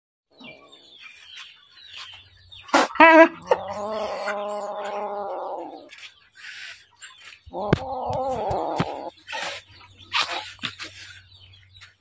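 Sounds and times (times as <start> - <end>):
long steady animal call: 2.6 - 11.5.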